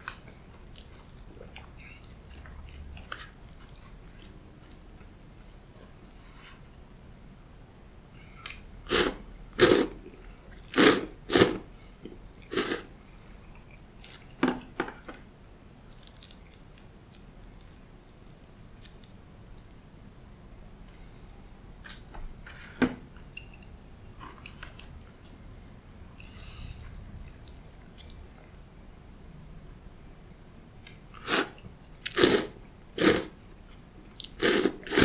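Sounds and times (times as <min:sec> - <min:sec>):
quiet chewing: 0:00.0 - 0:06.3, 0:15.9 - 0:19.8, 0:23.4 - 0:28.7, 0:33.0 - 0:35.0.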